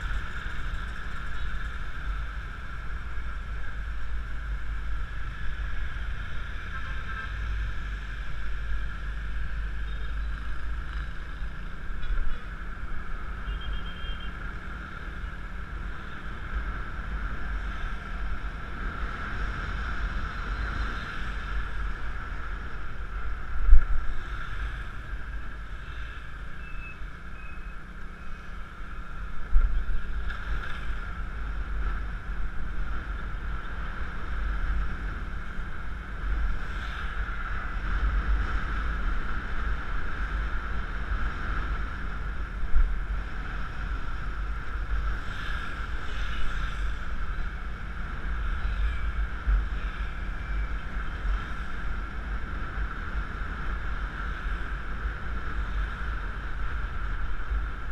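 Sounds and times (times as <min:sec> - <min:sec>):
scooter engine drone: 0:00.0 - 0:57.9.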